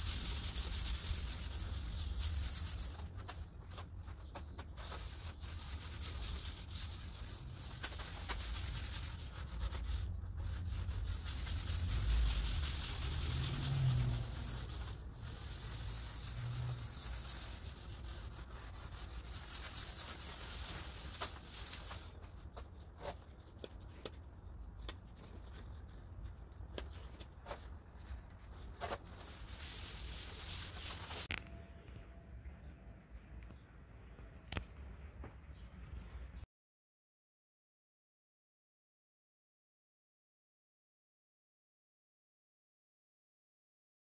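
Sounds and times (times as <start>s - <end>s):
pad scrubbing on wood: 0.0s - 22.2s.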